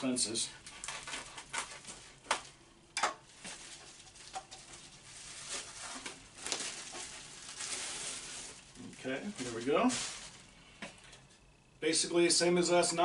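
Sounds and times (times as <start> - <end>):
plastic wrap crinkling: 3.2 - 11.2.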